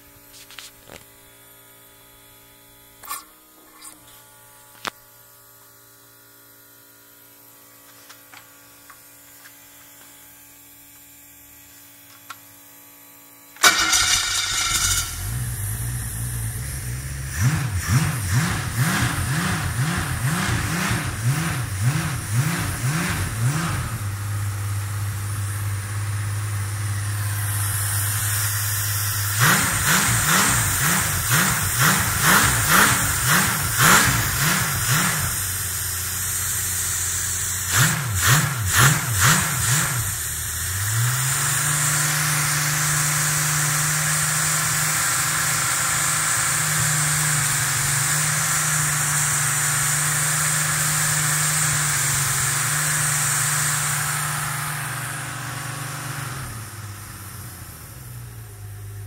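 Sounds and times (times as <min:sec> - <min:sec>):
car engine revving: 0:13.6 - 0:58.6.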